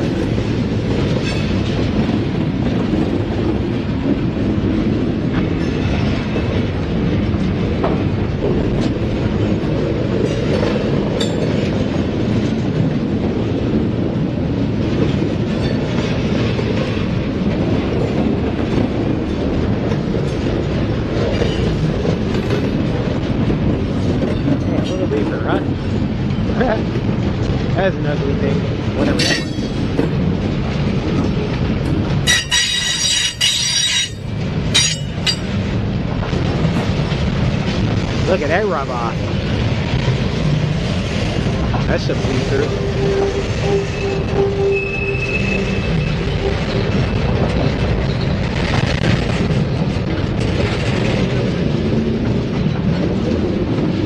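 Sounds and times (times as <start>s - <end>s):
train wheels rumbling on rail: 0.0s - 54.0s
clicks and clanks: 29.0s - 30.1s, 32.3s - 35.6s.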